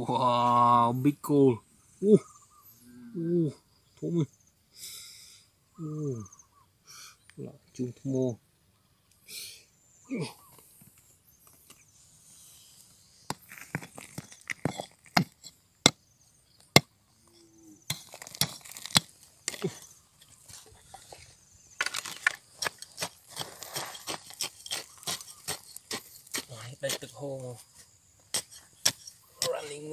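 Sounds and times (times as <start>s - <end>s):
pick striking stony soil: 13.3s - 16.0s, 17.8s - 21.2s, 21.8s - 27.5s, 28.3s - 29.9s.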